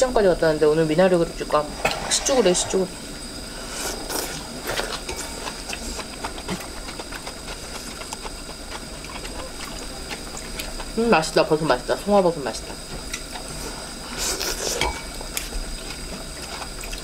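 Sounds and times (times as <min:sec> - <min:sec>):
broth simmering: 0:00.0 - 0:17.0
chewing and slurping: 0:03.6 - 0:11.0, 0:12.0 - 0:17.0.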